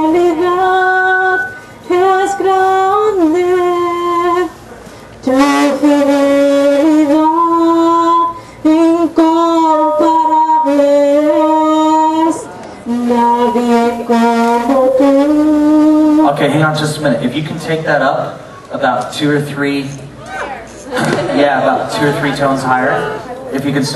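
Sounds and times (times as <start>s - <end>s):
woman singing: 0.0s - 4.6s, 5.2s - 16.2s.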